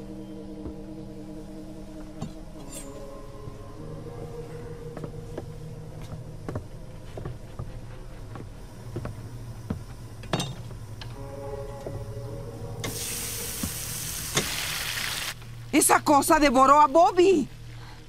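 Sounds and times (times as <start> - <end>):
food sizzling on hot metal: 12.9 - 15.4.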